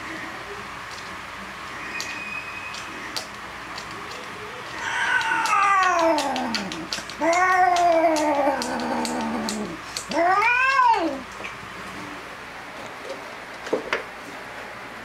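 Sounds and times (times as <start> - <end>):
cat yowling: 4.7 - 11.2.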